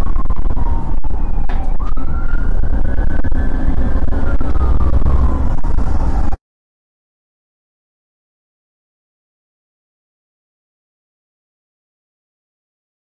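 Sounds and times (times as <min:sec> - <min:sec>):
car driving rumble: 0:00.0 - 0:06.4
police siren wailing: 0:00.0 - 0:06.4.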